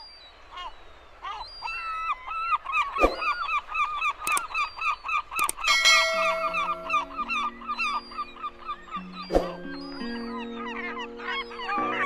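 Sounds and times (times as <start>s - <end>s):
water birds calling: 0.0s - 12.0s
sharp clicks: 4.2s - 4.6s, 5.3s - 5.7s
music: 6.6s - 12.0s.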